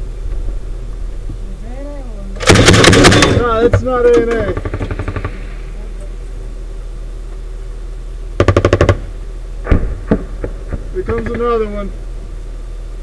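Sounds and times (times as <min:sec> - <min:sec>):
vehicle engine humming: 0:00.0 - 0:13.0
automatic gunfire burst: 0:02.4 - 0:03.6, 0:08.4 - 0:09.0
single sharp gunshots: 0:02.4 - 0:03.6, 0:09.6 - 0:11.6.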